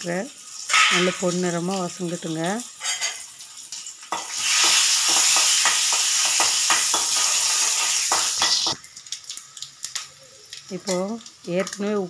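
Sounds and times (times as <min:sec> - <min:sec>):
onions sizzling in hot oil: 0:00.0 - 0:12.0
spoon clicking against pan: 0:04.1 - 0:07.3.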